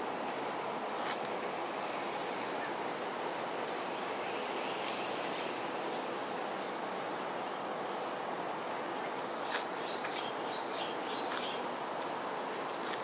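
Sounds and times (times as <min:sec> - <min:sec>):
brighter higher hiss: 0:00.0 - 0:08.3
outdoor background hiss: 0:00.0 - 0:13.0.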